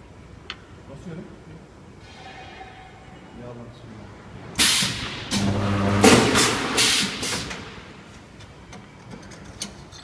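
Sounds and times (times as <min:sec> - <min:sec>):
welding machine hissing blasts: 0:04.6 - 0:07.6.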